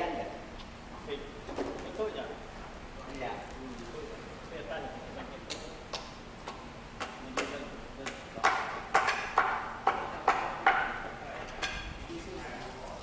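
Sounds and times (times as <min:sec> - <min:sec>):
sharp clicking knocks: 0:05.5 - 0:11.9.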